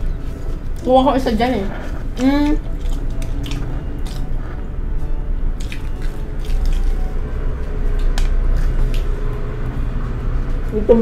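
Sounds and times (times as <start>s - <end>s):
steady low hum: 0.0s - 11.0s
people biting and chewing food: 1.8s - 4.9s, 5.5s - 10.6s.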